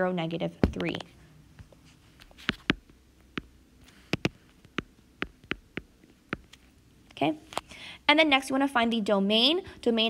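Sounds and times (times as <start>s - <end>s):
stylus tapping on glass screen: 2.4s - 6.6s.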